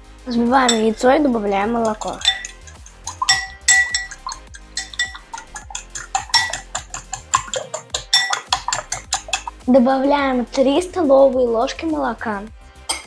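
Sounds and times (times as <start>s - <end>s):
metal whisk clinking on glass bowl: 0.7s - 1.1s, 1.7s - 9.7s.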